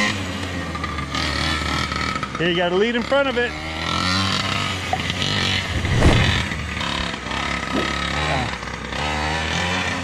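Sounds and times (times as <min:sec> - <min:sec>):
two-stroke rc truck engine revving: 0:00.0 - 0:10.0
loud low thump: 0:05.6 - 0:06.8.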